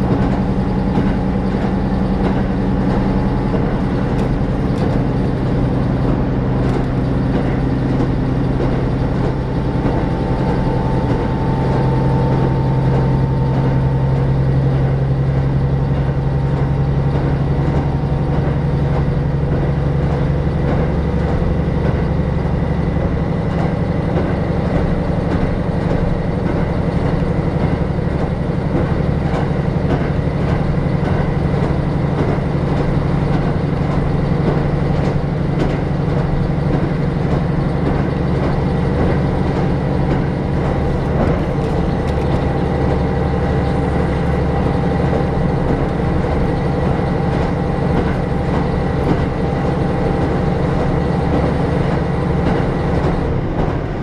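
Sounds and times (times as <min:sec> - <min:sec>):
railcar engine drone: 0:00.0 - 0:54.0
wheel and rail noise: 0:00.0 - 0:54.0.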